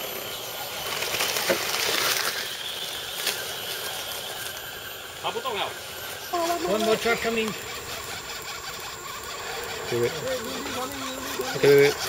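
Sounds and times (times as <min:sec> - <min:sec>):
toy trucks rustling through dry leaves: 0:00.4 - 0:12.0.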